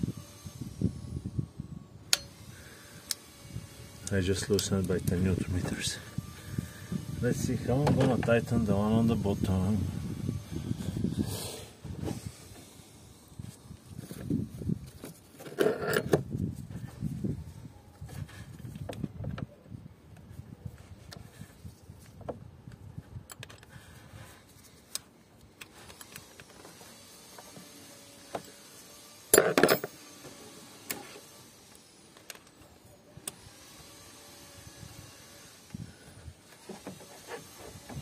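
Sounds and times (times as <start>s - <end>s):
wrench clicking and scraping: 15.4s - 16.2s, 29.3s - 30.0s.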